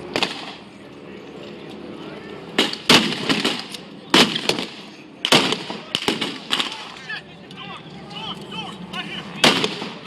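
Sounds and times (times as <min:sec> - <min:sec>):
blank gunshots: 0:02.6 - 0:06.8, 0:09.4 - 0:10.0.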